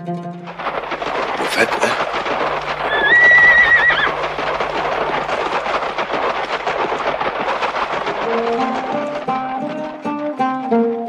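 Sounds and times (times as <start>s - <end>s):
galloping hoofbeats: 0.0s - 11.0s
horse whinnying: 2.5s - 4.9s.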